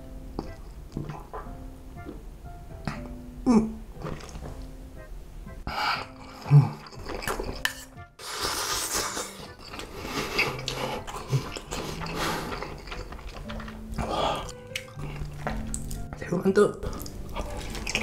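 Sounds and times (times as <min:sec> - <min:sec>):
light background music: 0:00.0 - 0:18.0
slurping and chewing noodles: 0:05.8 - 0:16.0, 0:16.8 - 0:18.0.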